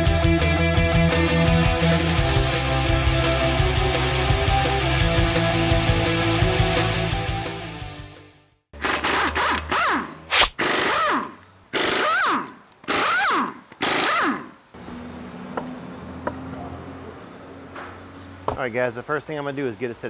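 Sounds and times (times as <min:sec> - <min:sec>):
impact wrench bursts: 0:08.8 - 0:14.6
shop hum: 0:08.8 - 0:19.8.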